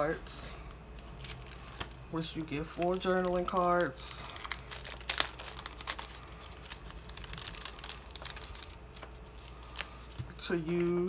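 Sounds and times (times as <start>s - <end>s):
plastic sleeve crinkling: 0.9s - 11.0s.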